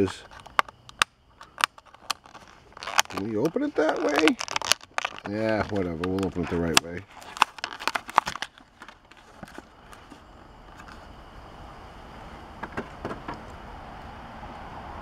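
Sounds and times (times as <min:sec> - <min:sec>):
plastic blister pack crackling: 0:00.0 - 0:10.2.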